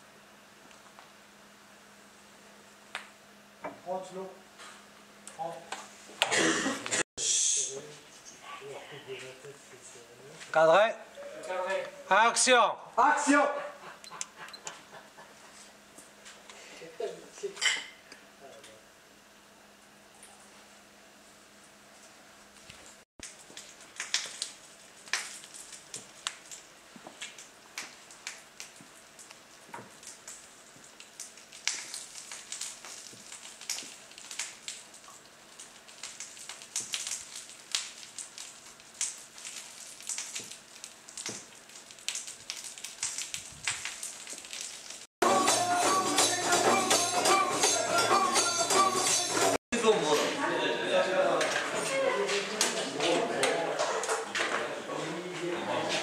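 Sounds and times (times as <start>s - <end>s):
torch crackling and sputtering: 22.6s - 45.1s
loud music: 45.2s - 49.6s.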